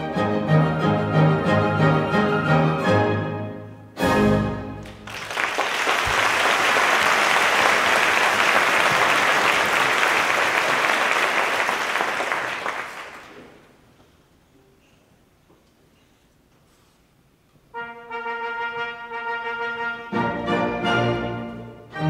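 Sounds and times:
orchestral music: 0:00.0 - 0:05.1, 0:17.7 - 0:22.0
audience applauding: 0:04.8 - 0:13.7.

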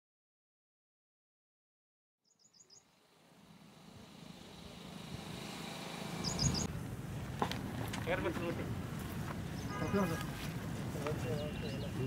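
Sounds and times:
bird chirping: 0:02.2 - 0:06.7, 0:11.1 - 0:12.0.

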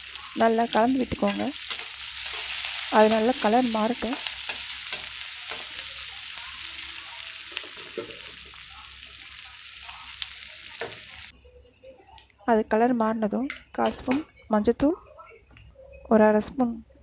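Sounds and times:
onions sizzling in hot oil: 0:00.0 - 0:11.3
metal spatula scraping a pan: 0:01.2 - 0:03.4.

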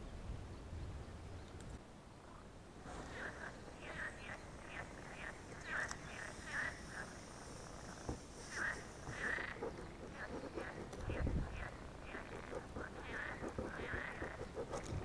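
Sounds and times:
air hissing from a leak: 0:05.2 - 0:09.6.

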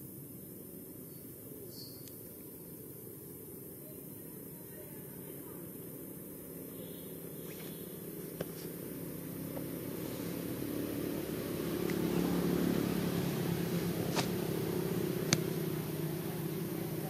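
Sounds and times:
vehicle engine hum: 0:05.2 - 0:17.0.

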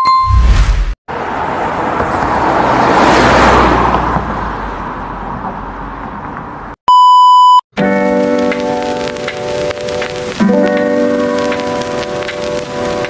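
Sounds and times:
low rumble: 0:00.3 - 0:01.0
whooshing rush: 0:00.3 - 0:01.8.

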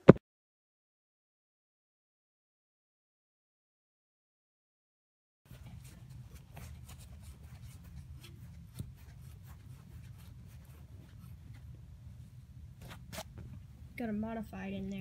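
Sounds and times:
low steady rumble: 0:05.5 - 0:15.0.

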